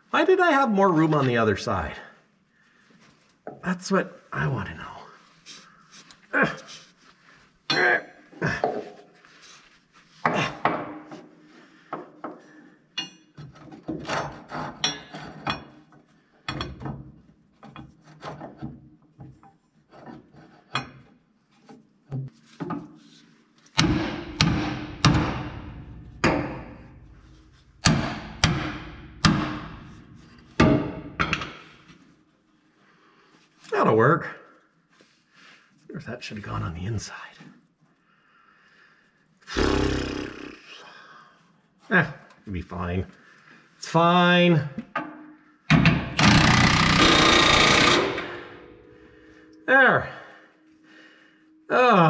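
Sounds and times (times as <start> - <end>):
hand tools clanking on metal: 13.0 - 15.9.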